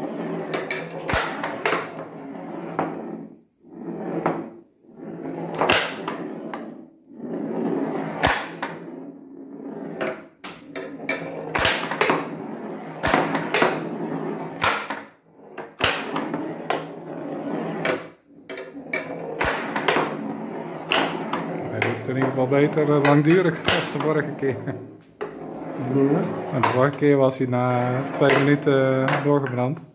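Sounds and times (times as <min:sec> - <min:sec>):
steel ball rolling on wood: 0:00.0 - 0:29.9
pinball flippers clacking: 0:17.9 - 0:20.2, 0:20.8 - 0:24.2.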